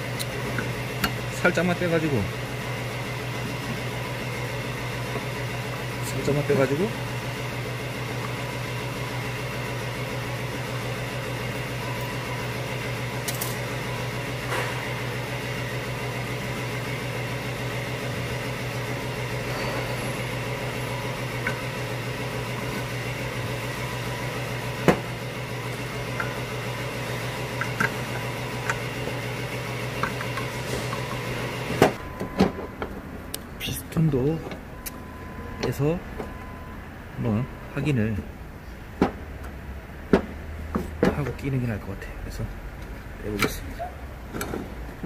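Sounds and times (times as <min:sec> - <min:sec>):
mechanical hum: 0:00.0 - 0:45.0.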